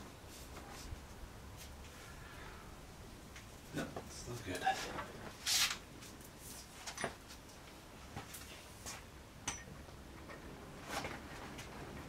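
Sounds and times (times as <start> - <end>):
rustle: 0.0 - 9.1.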